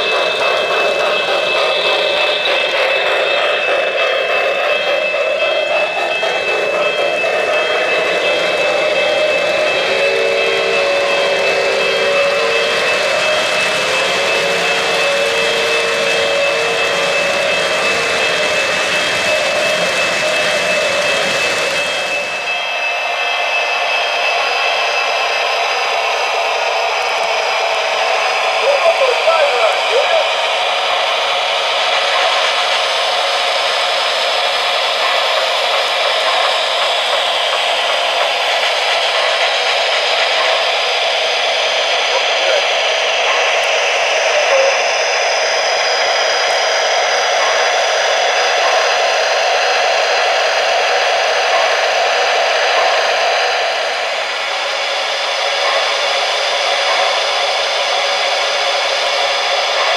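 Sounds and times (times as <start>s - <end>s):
model locomotive steady hiss: 28.0s - 59.9s.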